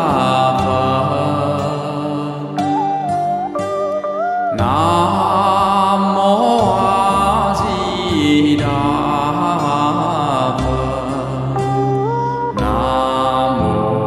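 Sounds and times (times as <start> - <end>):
voices chanting together: 0.0 - 3.3, 12.6 - 14.0
instrumental backing: 0.0 - 14.0.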